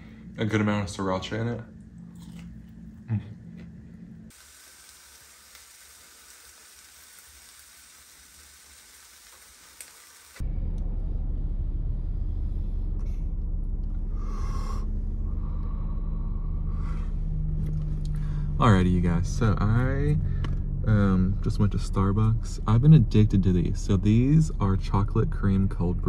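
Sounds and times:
food sizzling in a frying pan: 4.3 - 10.4
low rumble inside a car: 10.4 - 26.0
person exhaling: 14.0 - 17.4, 18.0 - 18.6.

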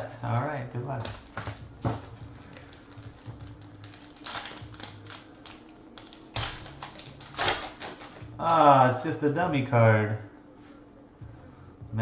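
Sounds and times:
foil wrapper crinkling: 0.2 - 8.7.

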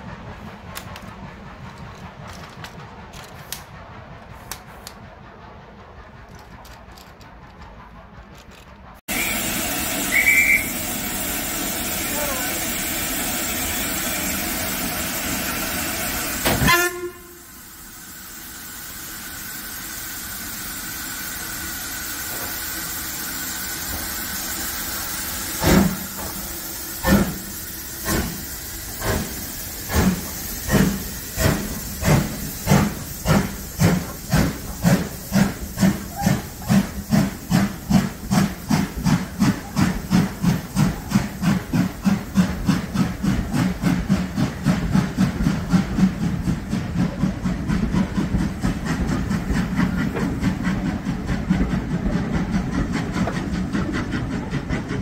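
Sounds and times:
steam locomotive exhaust chuffs: 0.0 - 55.0
steam hissing: 7.6 - 55.0
steam whistle toot: 9.1 - 10.9, 16.5 - 17.6.

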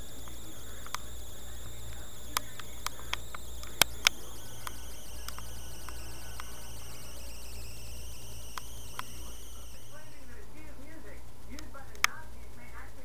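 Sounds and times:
plastic blister pack crackling: 0.0 - 10.4
steady low hum: 0.0 - 13.0.

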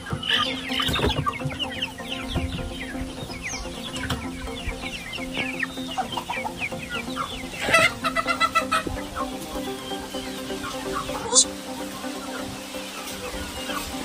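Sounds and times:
chickens chirping: 0.0 - 14.0
chicken rapid clucks: 5.4 - 9.7.

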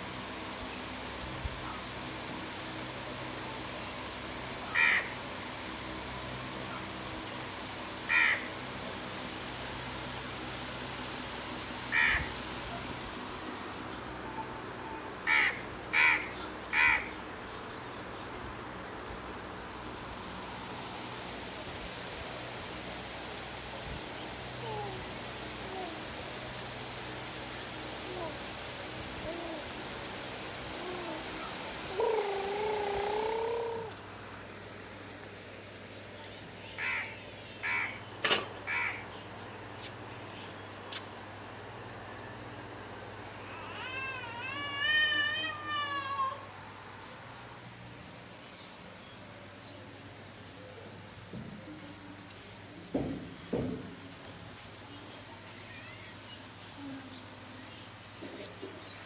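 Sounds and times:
steady background hiss: 0.0 - 59.0
crows cawing: 4.7 - 5.2, 8.1 - 8.5, 11.9 - 12.3, 15.2 - 17.2, 36.8 - 38.0, 38.6 - 39.1.

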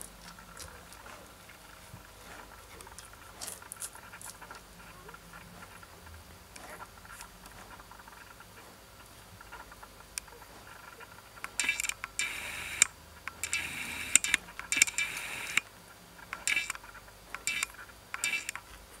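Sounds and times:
puppies suckling: 0.0 - 9.8.

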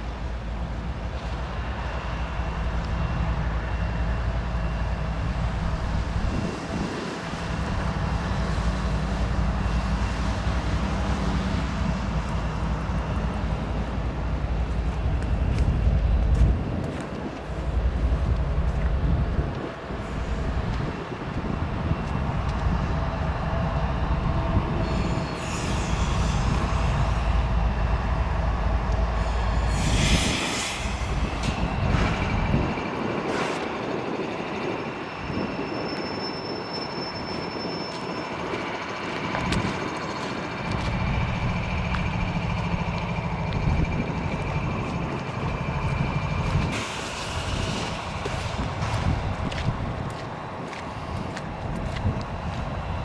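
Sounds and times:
locomotive engine rumble: 0.0 - 53.0
train wheels squealing: 22.3 - 49.3.

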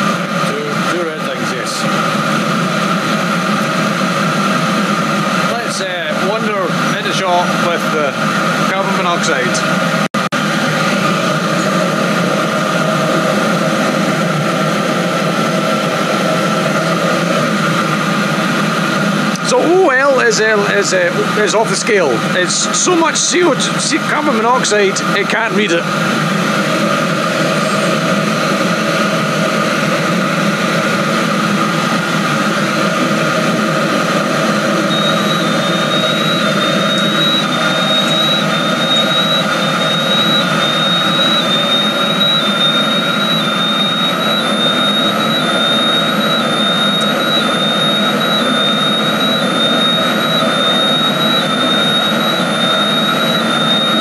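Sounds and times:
diesel air heater running: 0.0 - 54.0
rapid high alarm beeps: 34.2 - 54.0.

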